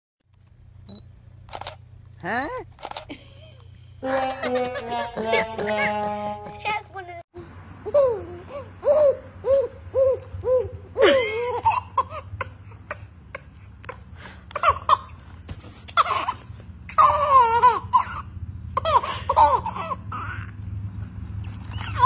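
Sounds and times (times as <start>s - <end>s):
baby laughing: 4.0s - 6.9s, 7.8s - 15.2s, 15.9s - 20.6s, 21.7s - 22.0s.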